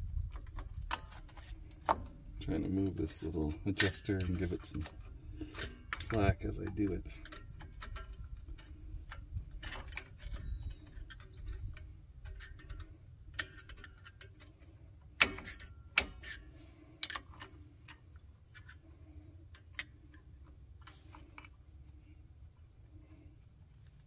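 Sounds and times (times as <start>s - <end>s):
low rumble of handling: 0.0s - 24.0s
metallic clicks from brake cable: 0.3s - 22.0s.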